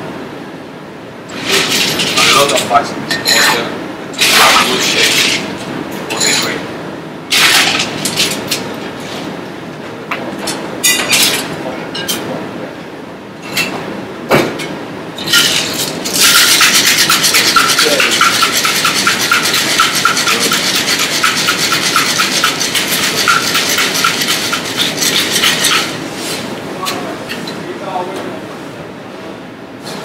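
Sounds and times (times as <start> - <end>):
ice rattling in cocktail shaker: 15.3 - 26.0.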